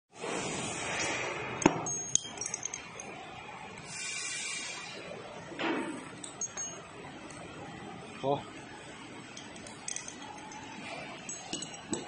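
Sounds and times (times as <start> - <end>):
light metallic clinks: 1.9 - 3.1, 6.2 - 6.8.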